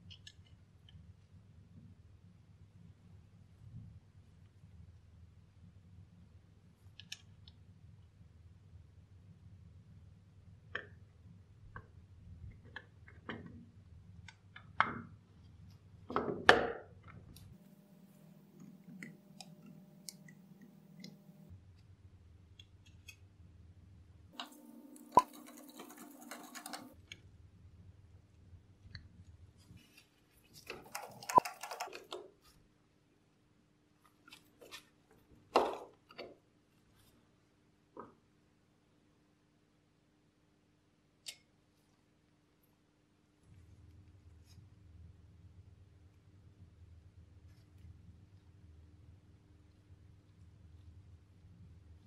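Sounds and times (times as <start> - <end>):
faint low hum: 16.8 - 52.0.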